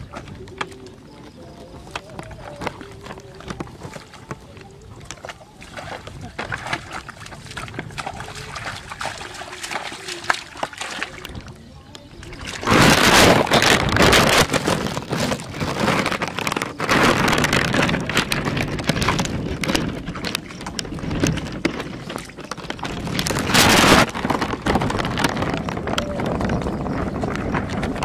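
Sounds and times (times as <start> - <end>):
splashing in muddy water: 0.0 - 28.0.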